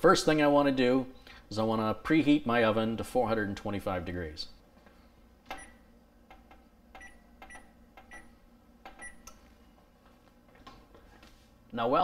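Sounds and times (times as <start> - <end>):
oven control panel beeping: 5.5 - 5.9, 6.9 - 9.4.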